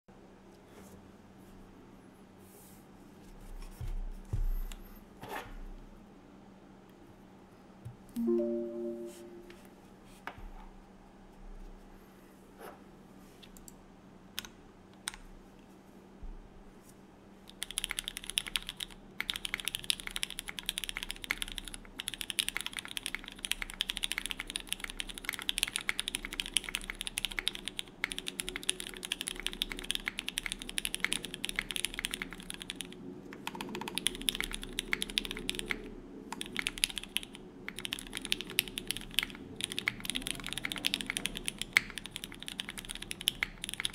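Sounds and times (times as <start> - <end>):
typing on a mechanical keyboard: 17.5 - 43.9.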